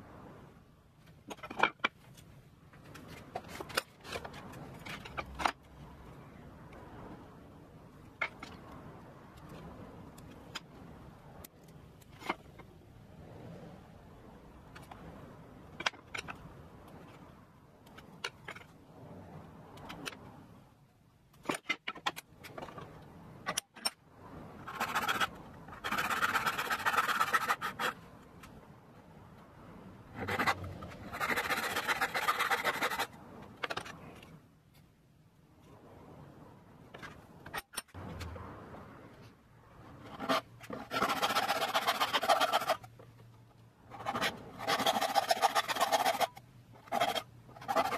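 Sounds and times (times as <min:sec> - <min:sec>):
hand saw cutting wood: 0:40.1 - 0:42.8, 0:44.0 - 0:47.9.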